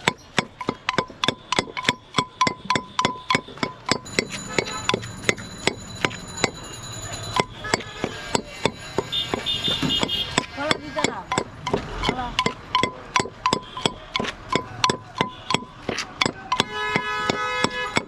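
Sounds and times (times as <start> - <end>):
knife chopping on wooden board: 7.7 - 18.0.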